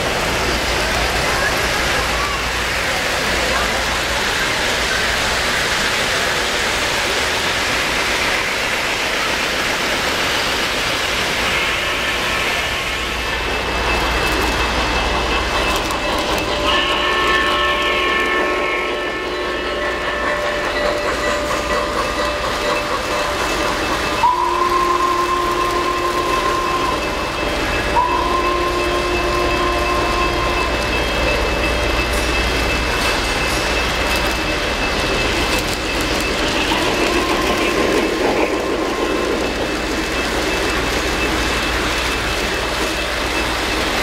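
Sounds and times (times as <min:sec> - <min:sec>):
model train wheels rumbling on rails: 0:00.0 - 0:44.0
electronic steam whistle chord: 0:15.8 - 0:32.4.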